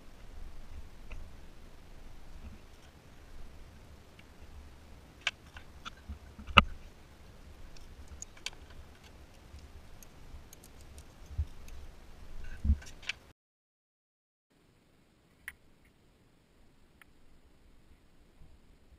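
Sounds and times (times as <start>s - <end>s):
light clicks and ticks: 7.7s - 11.9s.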